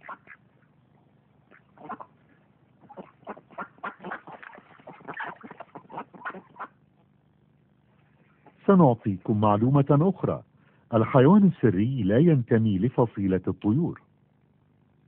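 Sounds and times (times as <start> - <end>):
ducks quacking: 0.0 - 0.7, 1.5 - 6.8.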